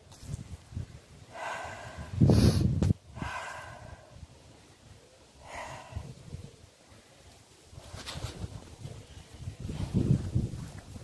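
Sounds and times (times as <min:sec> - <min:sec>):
person breathing close to microphone: 0:01.2 - 0:04.3, 0:05.4 - 0:06.6.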